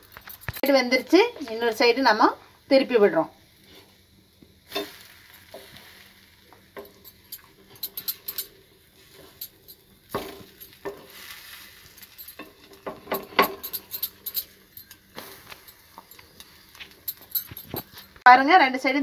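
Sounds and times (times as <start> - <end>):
bread sizzling in a pan: 0.0 - 19.0
wooden spatula scraping and tapping: 10.1 - 18.2.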